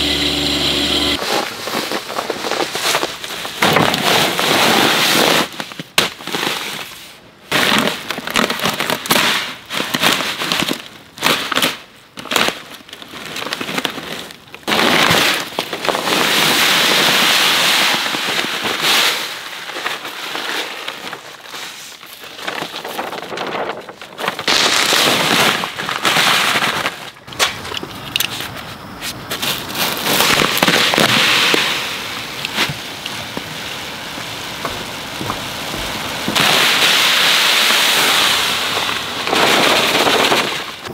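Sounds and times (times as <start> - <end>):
bags crinkling and rustling: 1.2 - 17.2, 17.8 - 27.8, 29.3 - 33.7.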